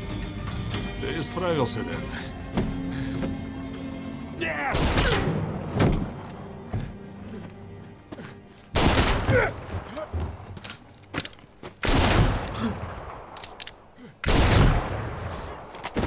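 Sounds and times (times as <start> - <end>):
revolver gunshots echoing: 4.8 - 5.5, 8.8 - 9.4, 11.8 - 13.6, 14.2 - 15.2.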